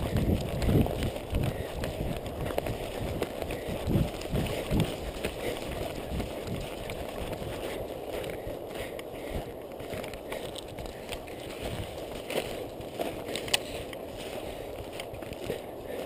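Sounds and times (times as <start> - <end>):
running footsteps on undergrowth: 0.0 - 16.0
shrubs rustling: 0.0 - 16.0.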